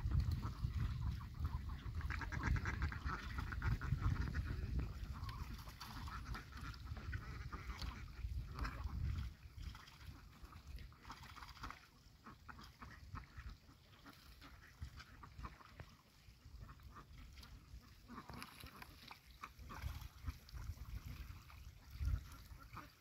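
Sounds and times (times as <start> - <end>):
duck calls: 0.4 - 9.0, 16.6 - 20.4.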